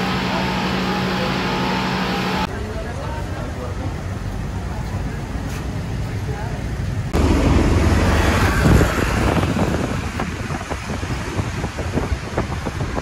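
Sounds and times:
road traffic: 0.0 - 13.0
wind buffeting microphone: 7.0 - 13.0.

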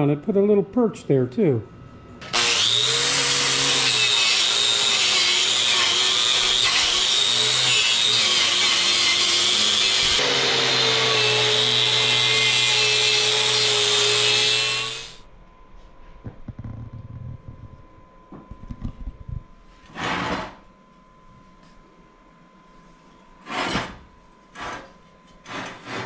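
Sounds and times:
grinder motor winding down: 2.2 - 15.2
angle grinder wire brushing metal: 2.4 - 15.2.

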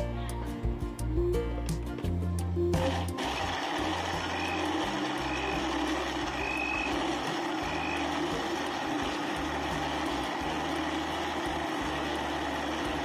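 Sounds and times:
blender crushing ice: 2.8 - 13.0.

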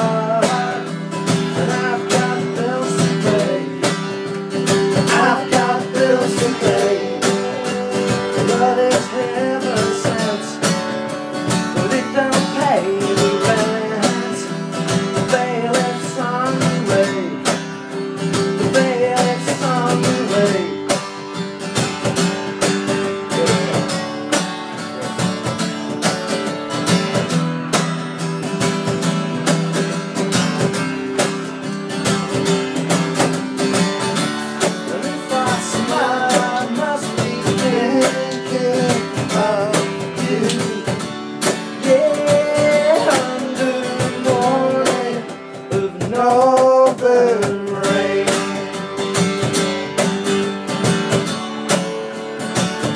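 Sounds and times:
acoustic guitar strumming: 0.0 - 52.9.

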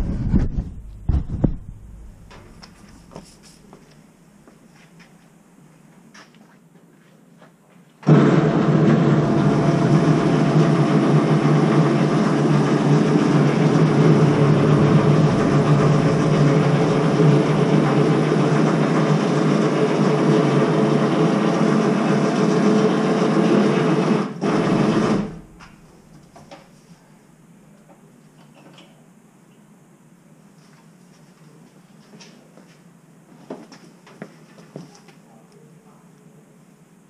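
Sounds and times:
vehicle lift electric motor running: 8.0 - 25.9.

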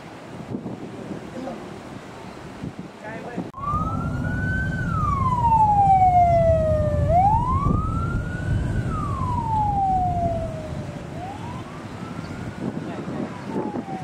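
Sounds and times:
low rumble: 3.6 - 11.2
ambulance siren wailing: 3.6 - 14.0.

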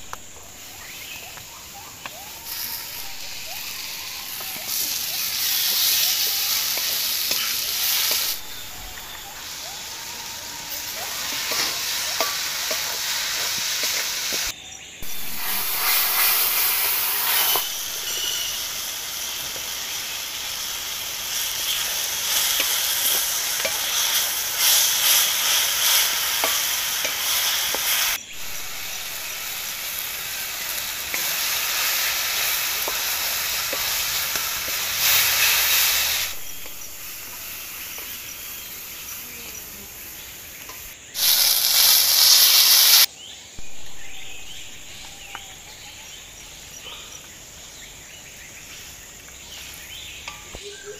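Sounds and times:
vegetables sizzling in a wok: 0.0 - 50.9
spatula scraping a pan: 15.2 - 18.6.

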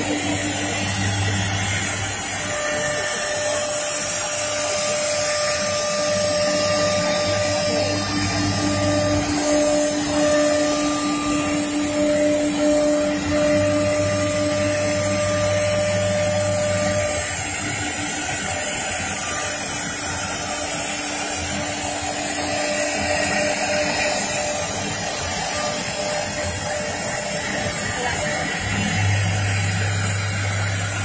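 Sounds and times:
dust extraction rushing: 0.0 - 31.0
router spindle whine cutting wood: 0.0 - 31.0.

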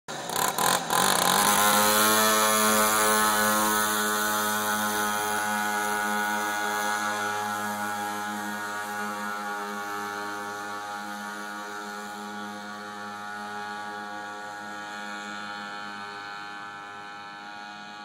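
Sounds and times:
small two-stroke engine buzzing: 0.1 - 18.0.

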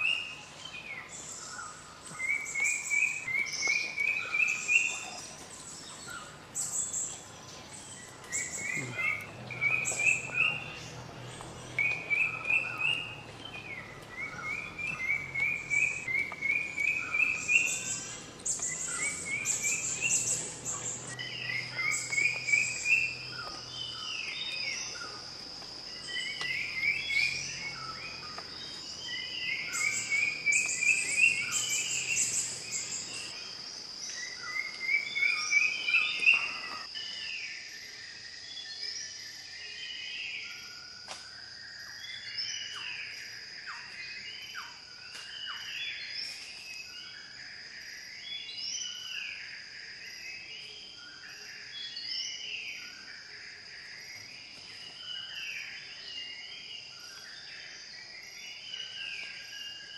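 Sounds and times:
high bird chirps: 11.6 - 25.2, 25.9 - 33.4.

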